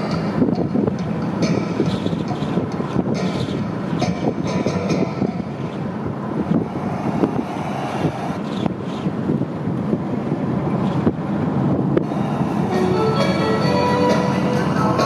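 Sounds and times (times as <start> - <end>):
car engine: 0.0 - 15.0.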